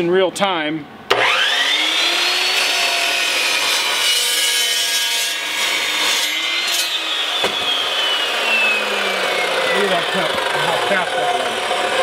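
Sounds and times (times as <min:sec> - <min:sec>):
saw motor whine: 0:01.1 - 0:04.6, 0:05.6 - 0:12.0.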